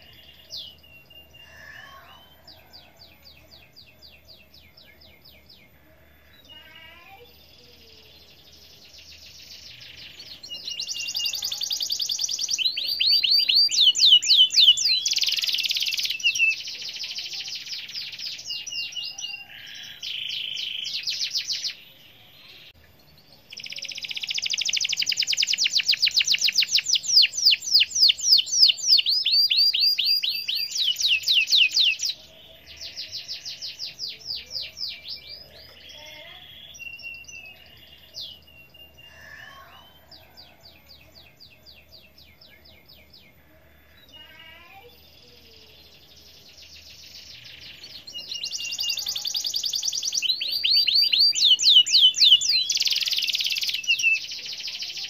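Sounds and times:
canary singing trills: 0.0s - 55.0s.

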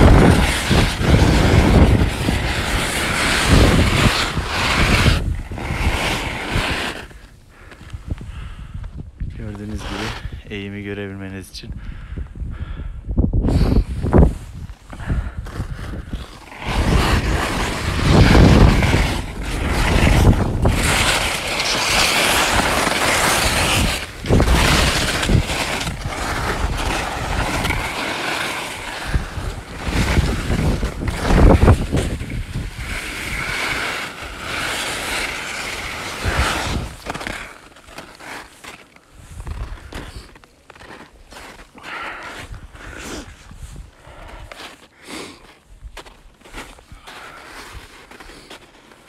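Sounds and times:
wind buffeting microphone: 0.0s - 7.0s, 7.9s - 10.6s, 11.6s - 28.0s, 28.7s - 34.7s, 35.8s - 37.1s, 39.2s - 40.1s
skis scraping on snow: 0.0s - 8.1s, 9.4s - 10.8s, 13.5s - 49.0s.

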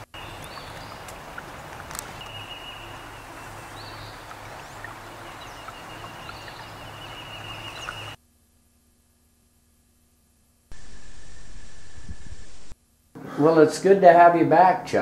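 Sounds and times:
bird chirping: 0.0s - 8.2s
steady hiss: 10.7s - 12.8s
thin high whine: 10.7s - 12.8s.

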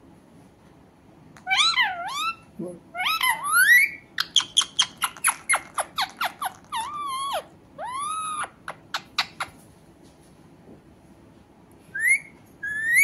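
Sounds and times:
parakeet squawking: 1.4s - 9.6s, 12.0s - 13.0s.

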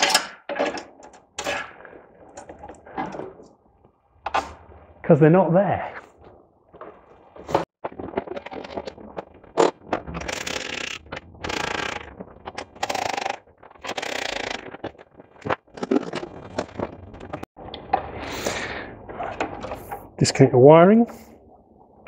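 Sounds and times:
tools scraping and rattling: 0.0s - 3.5s.

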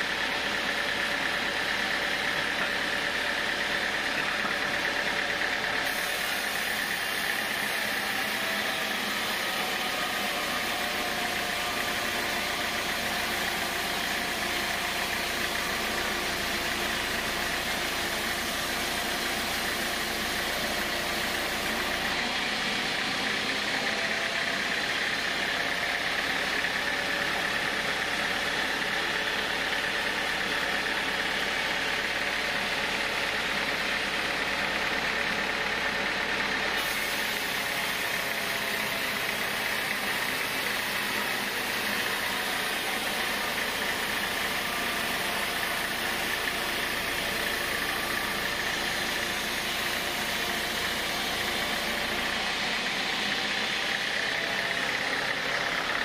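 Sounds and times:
band saw cutting wood: 0.0s - 56.0s.

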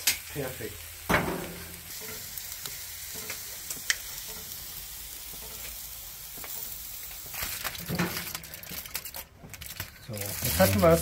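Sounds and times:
steak sizzling on a grill: 0.0s - 9.3s, 10.0s - 11.0s
aluminium foil crinkling: 6.4s - 11.0s.

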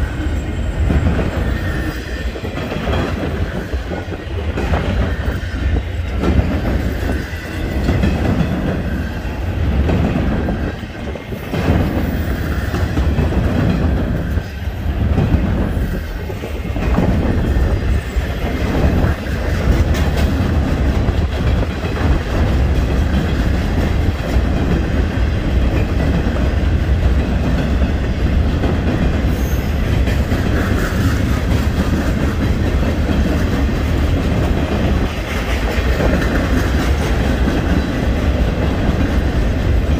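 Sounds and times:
freight train rumbling past: 0.0s - 39.9s.

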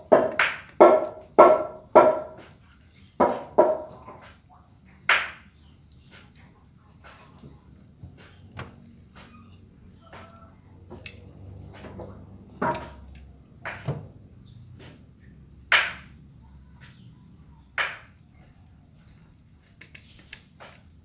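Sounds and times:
cats eating clicks: 19.0s - 21.0s.

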